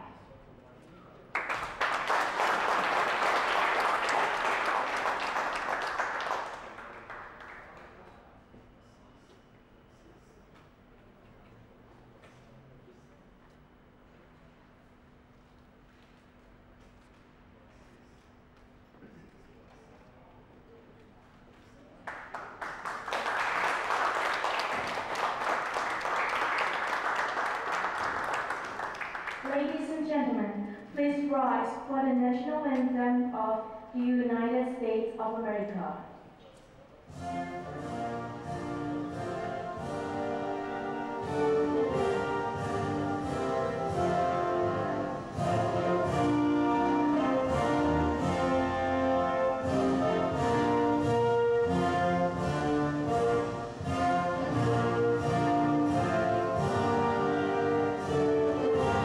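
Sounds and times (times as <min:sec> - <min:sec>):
audience applauding: 0:01.3 - 0:08.4, 0:22.0 - 0:30.0.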